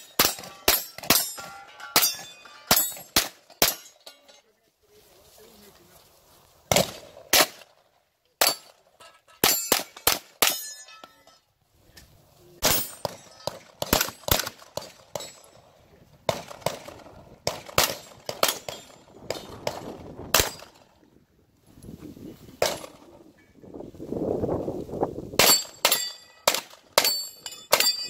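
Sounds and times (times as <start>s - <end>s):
bullets clanging on steel plates: 0.0s - 4.5s, 8.4s - 11.5s, 12.6s - 15.7s, 17.9s - 19.5s, 25.4s - 28.0s.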